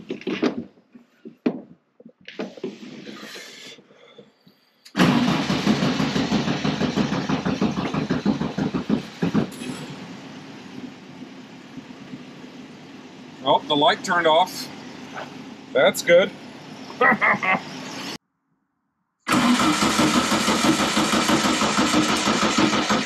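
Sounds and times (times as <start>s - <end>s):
car engine cranking and idling: 4.9s - 16.9s, 19.3s - 23.0s.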